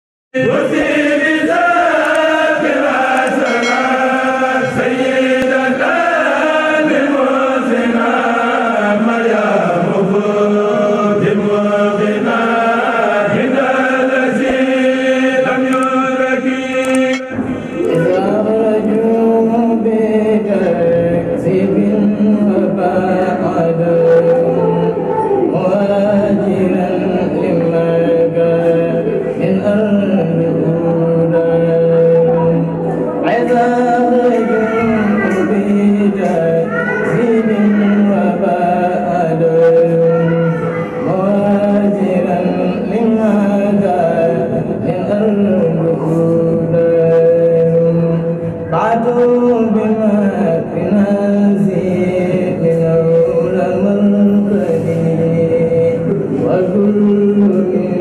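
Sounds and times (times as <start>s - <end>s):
voices chanting: 0.4s - 19.8s
man chanting into microphone: 0.4s - 58.0s.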